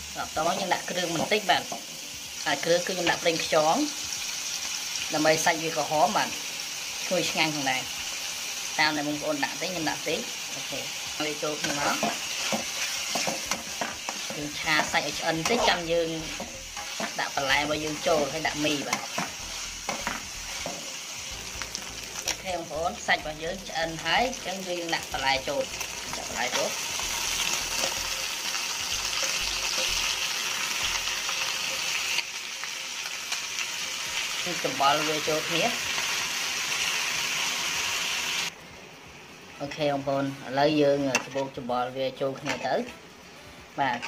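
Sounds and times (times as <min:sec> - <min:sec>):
food sizzling in hot oil: 0:00.0 - 0:44.0
metal spatula scraping wok: 0:10.4 - 0:22.5, 0:24.2 - 0:32.7.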